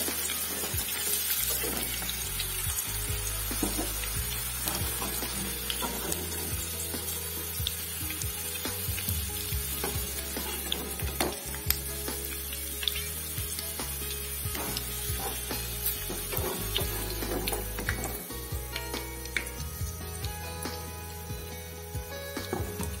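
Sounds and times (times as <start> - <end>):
vegetables sizzling in hot oil: 0.0 - 23.0
metal skimmer scraping and tapping: 3.5 - 6.6, 14.6 - 18.2.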